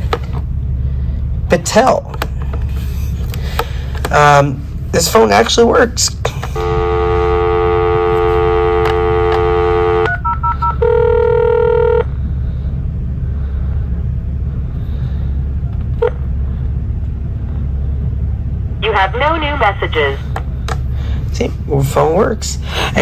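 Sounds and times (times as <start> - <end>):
steady low hum: 0.0 - 23.0
telephone dial tone: 6.6 - 12.1.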